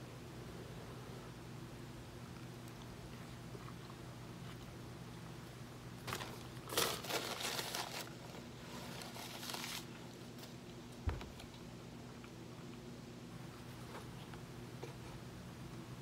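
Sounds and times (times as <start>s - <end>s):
cardboard packaging crinkling: 6.0s - 10.6s
thump: 11.0s - 11.3s.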